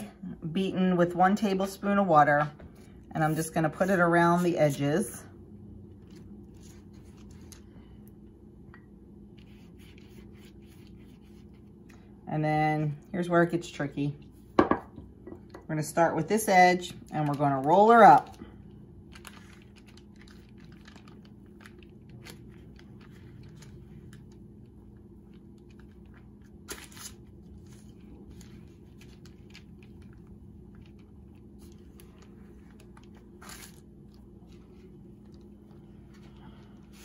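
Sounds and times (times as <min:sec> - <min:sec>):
low steady hum: 0:00.0 - 0:37.0
parchment paper rustling: 0:05.9 - 0:08.1, 0:09.3 - 0:12.1, 0:16.9 - 0:37.0.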